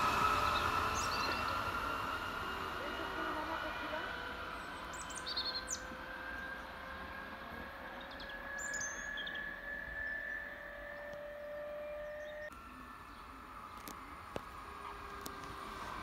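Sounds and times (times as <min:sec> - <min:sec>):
distant electric train whine: 0:00.0 - 0:16.0
bird chirps: 0:00.4 - 0:01.7, 0:04.5 - 0:07.1, 0:07.8 - 0:13.8.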